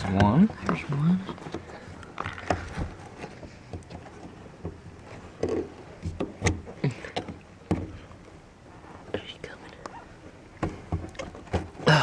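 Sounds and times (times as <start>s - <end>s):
knocks and rustling: 0.0s - 8.1s, 10.5s - 11.9s.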